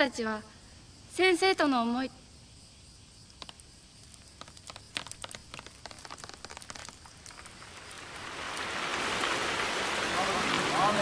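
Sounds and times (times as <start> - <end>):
rain pattering: 3.2 - 11.0.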